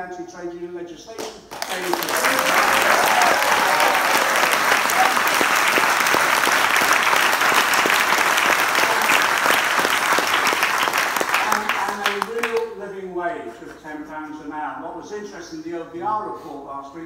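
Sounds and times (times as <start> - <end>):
crowd applauding: 1.5 - 12.7.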